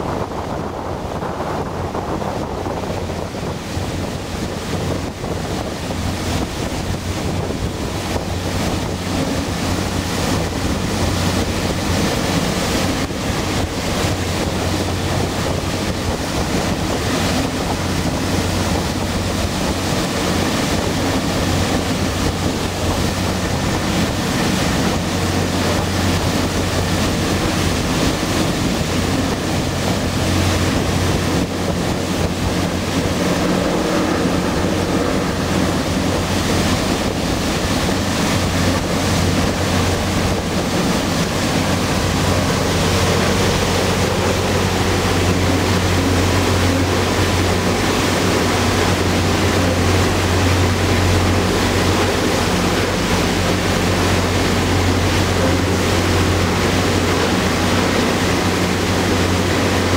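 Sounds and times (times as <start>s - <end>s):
boat engine drone: 0.0s - 59.9s
rushing boat wake: 0.0s - 59.9s
wind buffeting microphone: 0.0s - 59.9s.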